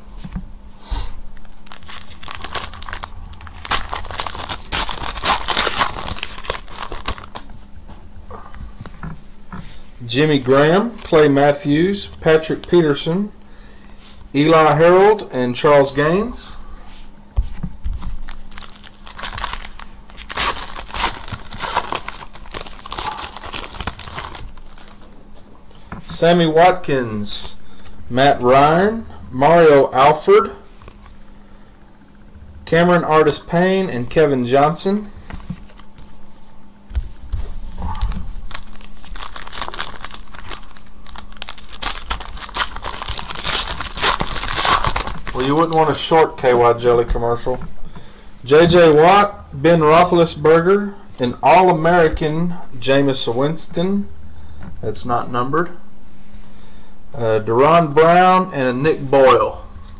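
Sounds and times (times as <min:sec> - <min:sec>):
foil wrapper crinkling and tearing: 0:01.5 - 0:07.5, 0:18.2 - 0:25.2, 0:37.8 - 0:46.2.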